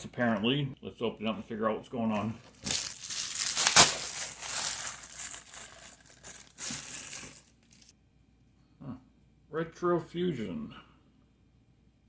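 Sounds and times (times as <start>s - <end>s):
plastic bag crinkling: 2.4s - 7.9s.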